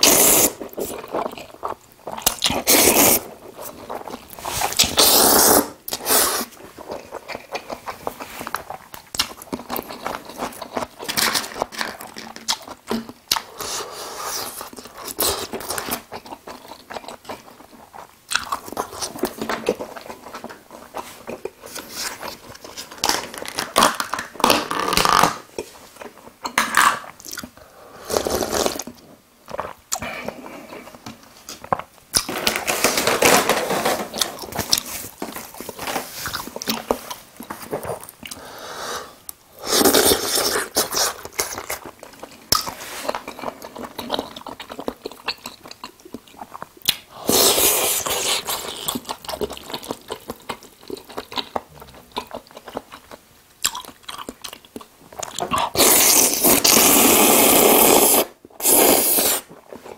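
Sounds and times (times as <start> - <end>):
slurping noodles: 0.0 - 0.8, 4.4 - 6.6, 27.8 - 28.8, 47.1 - 48.8, 55.5 - 59.6
chewing and crunching: 0.6 - 5.0, 6.6 - 13.7, 14.5 - 24.2, 40.1 - 47.2, 48.0 - 56.8.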